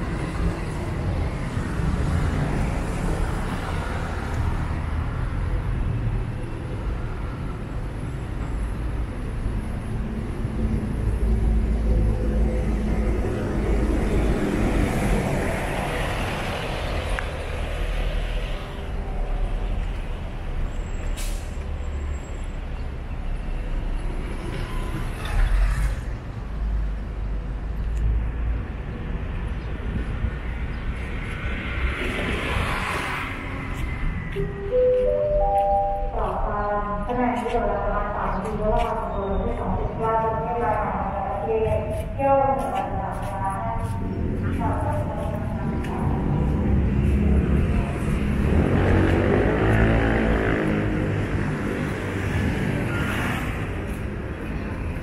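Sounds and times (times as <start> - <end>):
rumble of large vehicles: 0.0 - 55.0.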